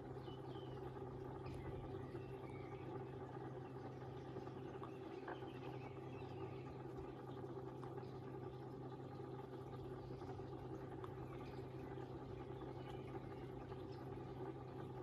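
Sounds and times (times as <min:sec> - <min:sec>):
pond pump humming: 0:00.0 - 0:15.0.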